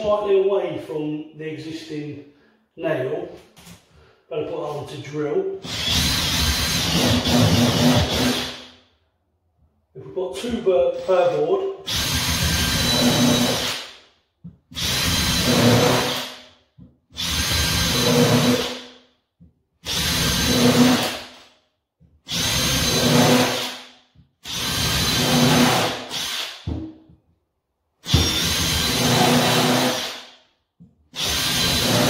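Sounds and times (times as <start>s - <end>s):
cordless drill drilling wood: 5.6s - 8.7s, 11.9s - 14.0s, 14.7s - 16.4s, 17.2s - 18.9s, 19.8s - 21.4s, 22.3s - 26.7s, 28.0s - 30.4s, 31.2s - 32.0s.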